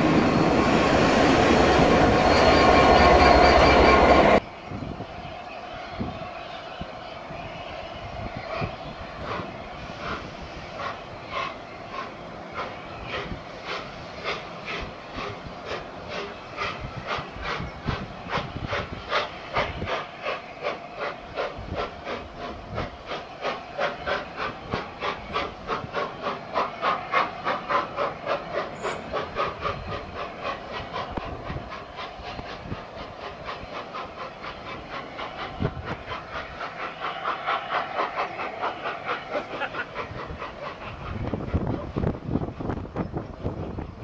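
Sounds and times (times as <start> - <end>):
steam locomotive chuffing: 0.0 - 44.0
train rolling by: 0.0 - 44.0.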